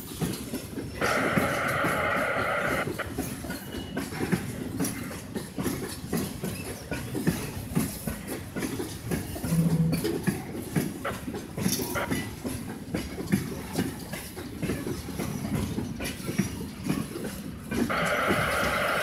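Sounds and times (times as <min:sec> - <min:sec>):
train wheels clicking over rail joints: 0:00.0 - 0:19.0
low tone: 0:09.4 - 0:10.2.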